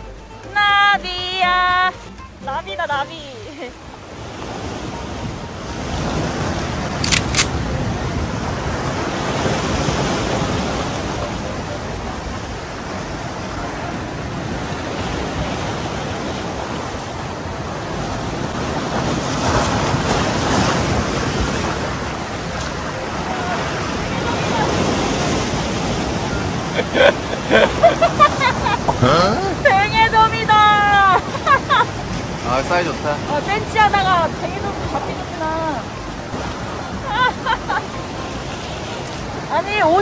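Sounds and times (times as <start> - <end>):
sea waves washing against rocks: 3.6 - 40.0
sharp clicks: 7.0 - 7.6.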